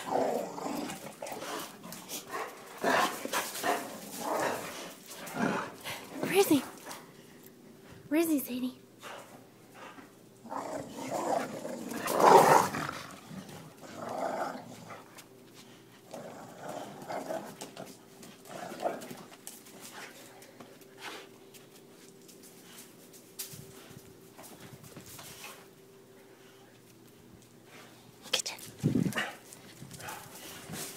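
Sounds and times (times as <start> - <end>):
dogs growling in play: 0.0 - 7.5, 9.0 - 21.3.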